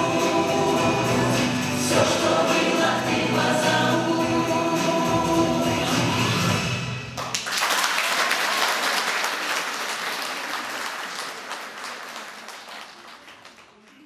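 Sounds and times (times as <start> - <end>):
audience applauding: 7.2 - 14.0.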